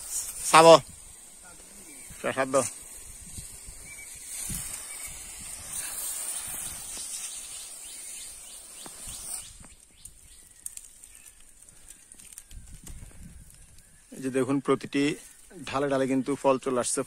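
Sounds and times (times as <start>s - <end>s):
pressure sprayer hissing: 0.0s - 10.0s.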